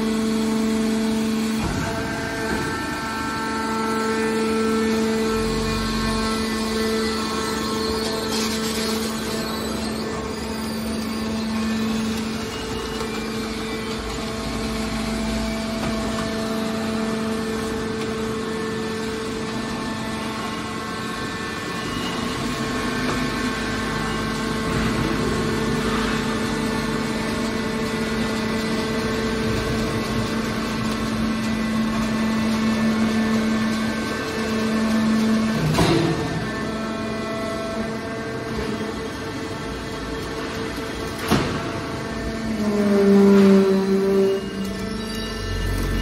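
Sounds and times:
industrial machinery humming: 0:00.0 - 0:46.0.

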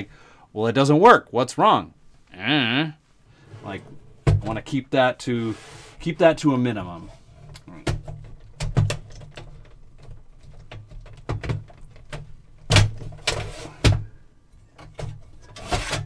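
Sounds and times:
metal scraping: 0:03.3 - 0:06.2.

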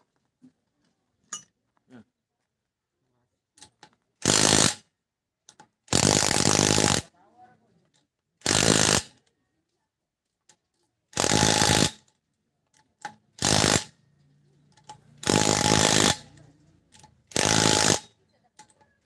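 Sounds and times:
impact wrench hammering: 0:11.1 - 0:12.1, 0:14.8 - 0:18.8.

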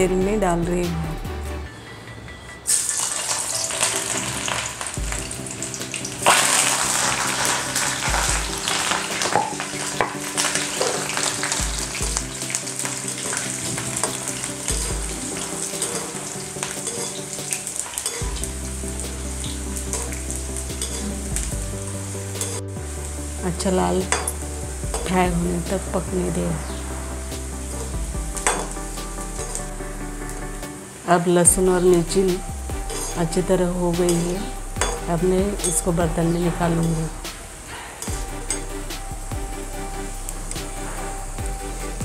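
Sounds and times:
food sizzling in hot oil: 0:02.7 - 0:42.0
metal spoon stirring: 0:06.2 - 0:18.5, 0:19.8 - 0:21.5, 0:32.9 - 0:33.4.

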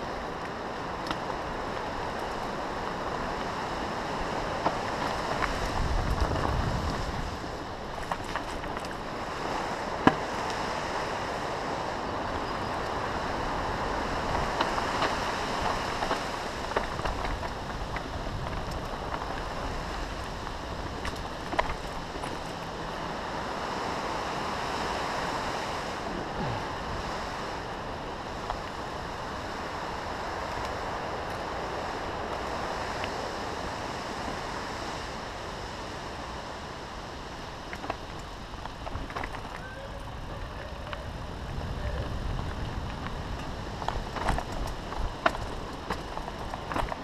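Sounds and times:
bike tyres rolling over dirt: 0:00.0 - 0:47.0
wind on microphone: 0:00.0 - 0:47.0
bike rattles from bumps: 0:04.1 - 0:10.5, 0:13.8 - 0:23.2, 0:37.6 - 0:47.0.

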